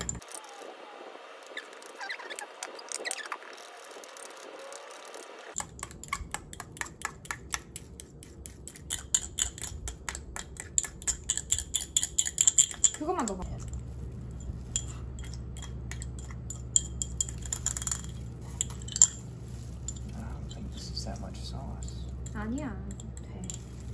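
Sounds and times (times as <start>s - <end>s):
fork clinking in ceramic cup: 8.8s - 13.4s, 14.7s - 20.2s.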